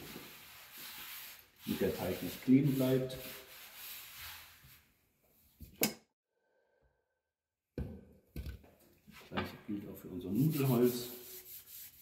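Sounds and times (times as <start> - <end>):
hand rubbing flour on board: 0.0 - 4.8, 10.3 - 12.0.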